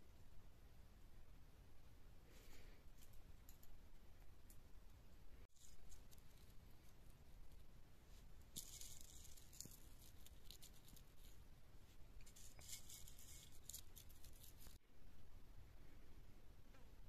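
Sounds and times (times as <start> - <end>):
dried flowers crackling: 5.4 - 14.8.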